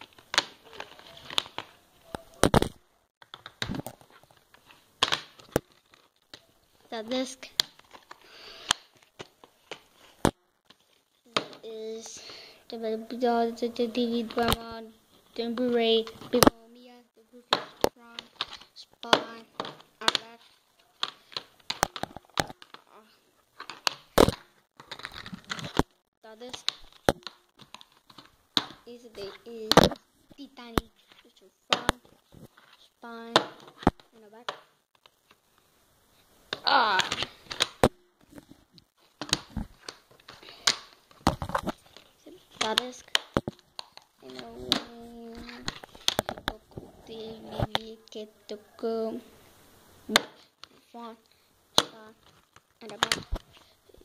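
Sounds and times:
plastic disc case clicking: 0.0 - 6.5, 21.0 - 22.9, 23.6 - 25.9, 26.5 - 30.0, 36.5 - 38.4, 39.0 - 46.6, 51.8 - 53.6.

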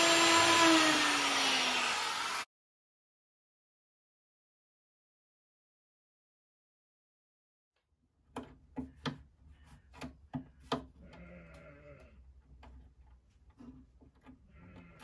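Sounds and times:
wavering bleat-like cry: 11.0 - 12.2, 14.5 - 15.0.

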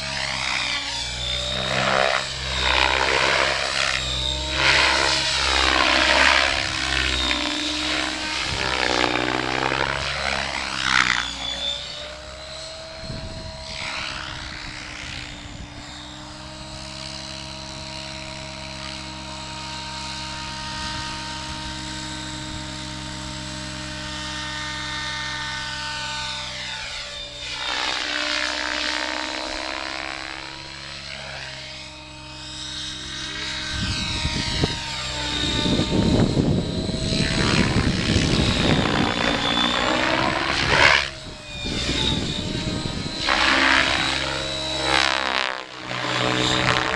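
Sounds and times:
model helicopter rotor whine: 0.0 - 46.9.

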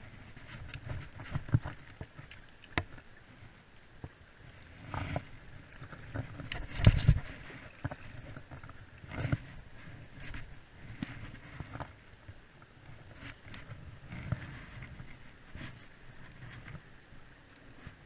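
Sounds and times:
knocks and clicks of boat: 0.1 - 3.1, 4.8 - 16.9
low thuds and scraping: 4.8 - 11.9.

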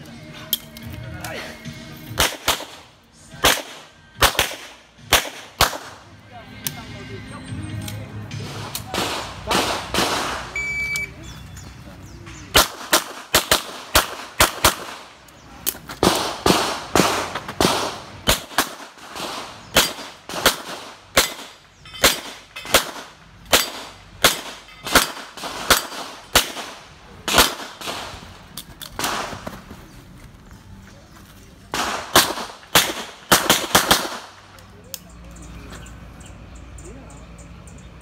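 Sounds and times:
gunshots with echo: 8.4 - 10.6, 12.5 - 15.1, 16.0 - 28.4, 29.0 - 29.6, 31.7 - 34.4.

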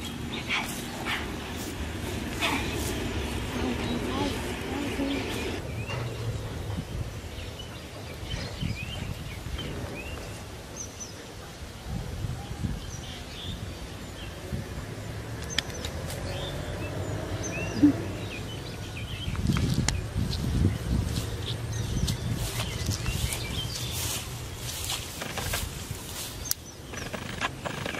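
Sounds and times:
low outdoor rumble: 0.0 - 8.1
small birds chirping: 0.0 - 27.9.

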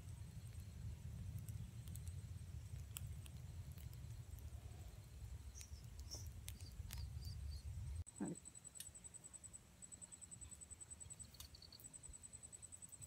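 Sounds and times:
campfire crackling and popping: 0.0 - 8.0
low steady rumble: 0.0 - 8.6.

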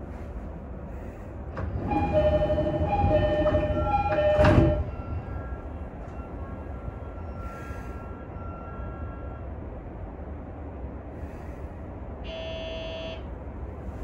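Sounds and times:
electric train rumbling: 0.0 - 14.0
level crossing alarm ringing: 1.7 - 6.5.

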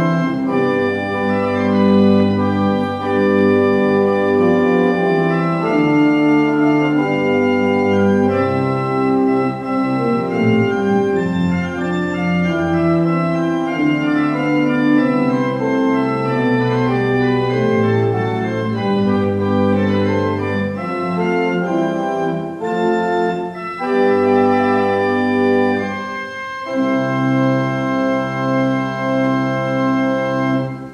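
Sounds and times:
organ playing sustained chords: 0.0 - 30.9.

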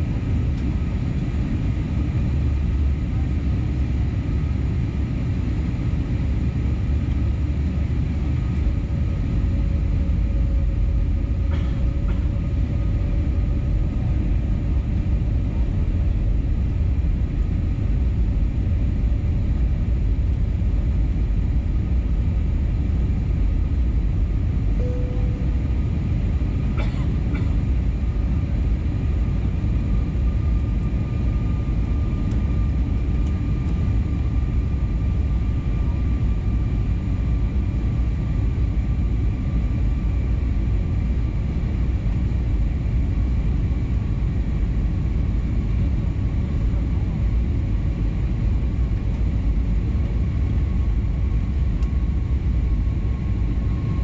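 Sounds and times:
airplane cabin rumble: 0.0 - 54.0
faint whining tones: 24.8 - 26.4.

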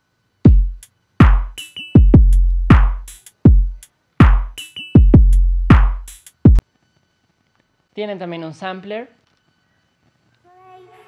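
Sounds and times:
hi-hat and snare hits: 0.4 - 6.6
deep kick drums: 0.5 - 6.6.

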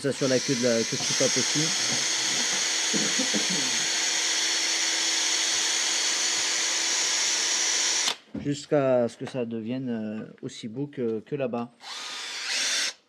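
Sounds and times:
cordless drill whirring: 0.0 - 8.2, 11.8 - 13.0.

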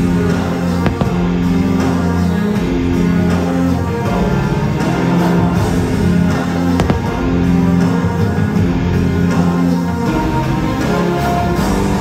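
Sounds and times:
rock music with guitar: 0.0 - 12.0
faint sharp cracks: 0.8 - 1.5, 6.6 - 7.5.

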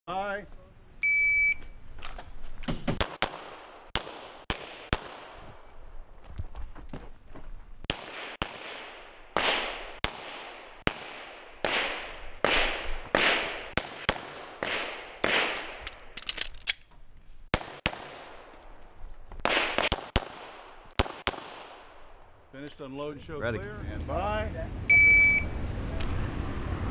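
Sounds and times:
pistol shots: 3.0 - 5.5, 7.9 - 15.8, 17.5 - 18.5, 19.4 - 22.0.

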